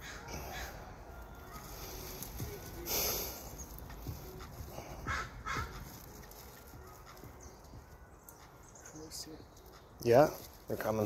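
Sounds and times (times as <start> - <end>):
crow cawing: 0.0 - 0.8, 5.0 - 5.9.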